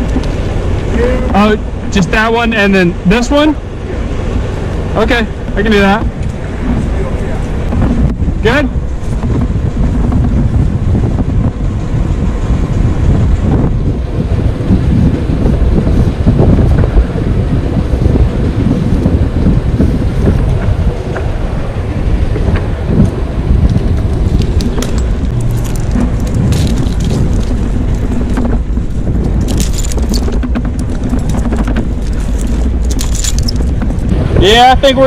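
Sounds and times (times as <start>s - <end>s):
wind buffeting microphone: 0.0s - 35.0s
metal climbing hardware clinking: 29.4s - 30.4s, 31.2s - 33.8s.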